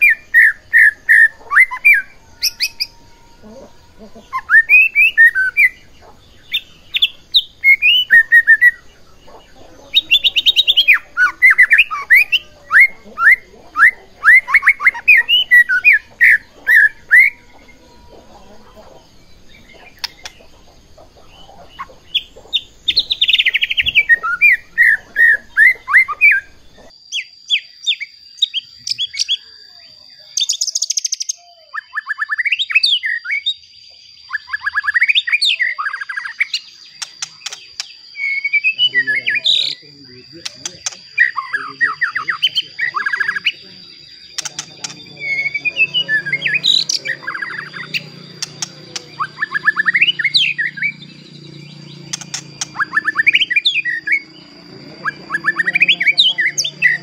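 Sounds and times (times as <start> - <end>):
bird singing whistled notes: 0.0 - 57.0
steady high tone: 38.8 - 57.0.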